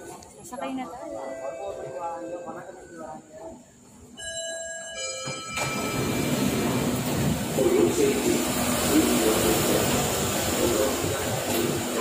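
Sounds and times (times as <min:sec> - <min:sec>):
train rushing noise: 0:05.2 - 0:12.0.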